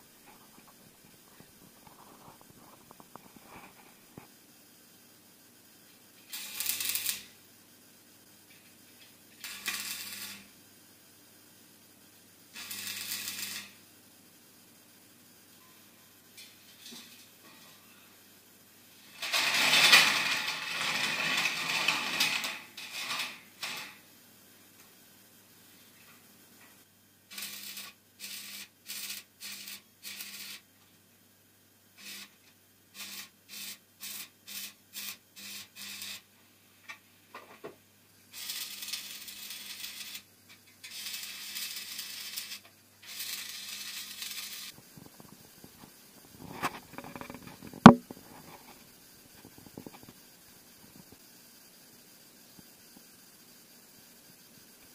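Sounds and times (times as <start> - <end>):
electric arc welding: 6.2 - 7.4, 8.5 - 10.6, 12.5 - 13.9, 18.9 - 24.0, 27.2 - 30.7, 32.0 - 36.3, 38.3 - 54.9.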